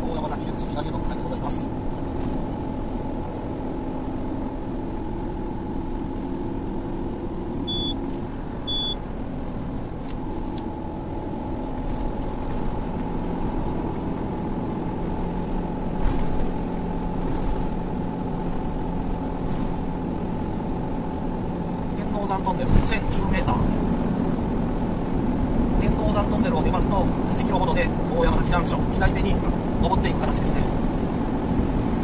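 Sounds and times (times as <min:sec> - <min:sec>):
road and engine noise: 0:00.0 - 0:32.0
short high beeps: 0:07.6 - 0:08.0, 0:08.6 - 0:09.0.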